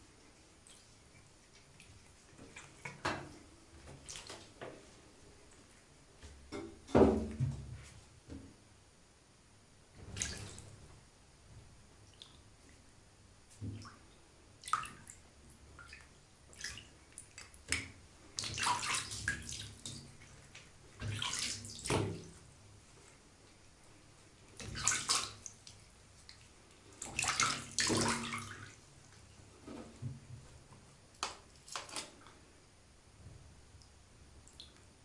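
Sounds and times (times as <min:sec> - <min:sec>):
water splashing in bathtub: 0:00.2 - 0:04.8, 0:10.0 - 0:10.9, 0:13.5 - 0:22.6, 0:24.4 - 0:30.6, 0:31.2 - 0:32.3.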